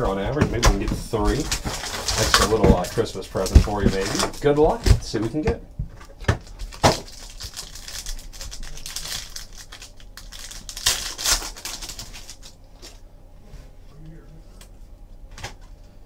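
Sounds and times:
foil wrapper crinkling: 0:01.2 - 0:04.7, 0:06.4 - 0:13.0
foil pack tearing open: 0:01.3 - 0:04.5, 0:06.4 - 0:12.6.

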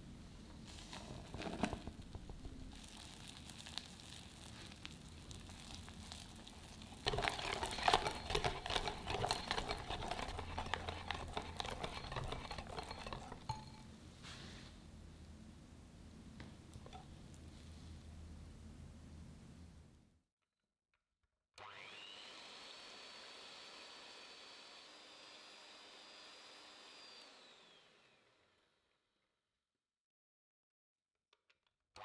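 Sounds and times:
whisk scraping in glass bowl: 0:07.0 - 0:13.9.

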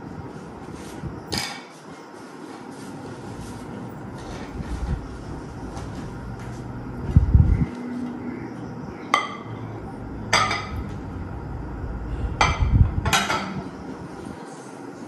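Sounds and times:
dinner plates clinking: 0:10.3 - 0:10.9, 0:12.4 - 0:13.7.

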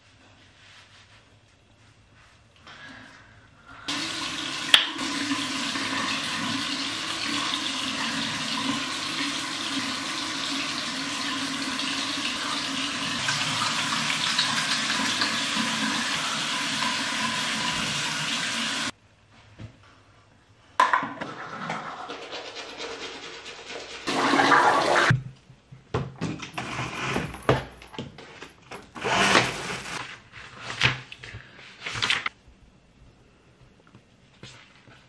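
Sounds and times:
water running from tap into sink: 0:03.9 - 0:18.9.

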